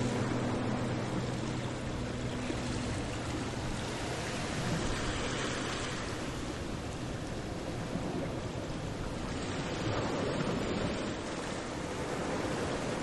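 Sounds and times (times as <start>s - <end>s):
background music: 0.0s - 4.8s.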